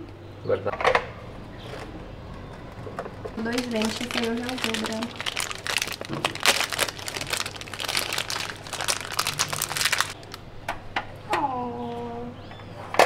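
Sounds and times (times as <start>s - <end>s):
plastic packaging crinkling: 3.4s - 10.4s.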